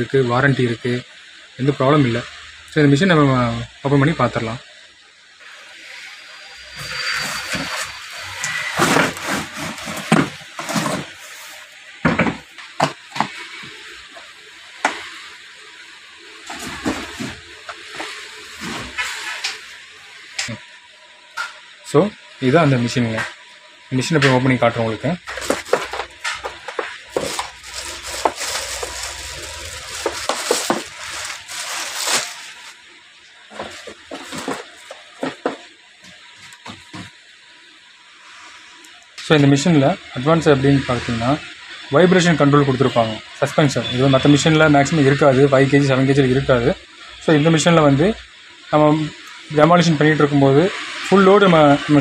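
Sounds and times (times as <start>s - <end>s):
box scraping and shuffling: 6.8s - 11.7s, 16.4s - 19.4s, 25.3s - 32.8s, 33.5s - 35.6s
plastic wrapping crinkling: 7.4s - 11.8s, 25.2s - 32.9s, 33.5s - 35.6s.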